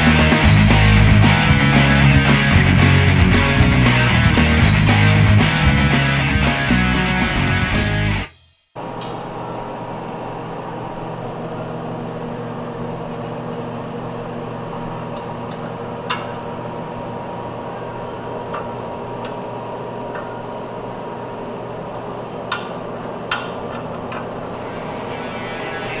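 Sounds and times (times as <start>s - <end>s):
electrical hum: 8.8s - 26.0s.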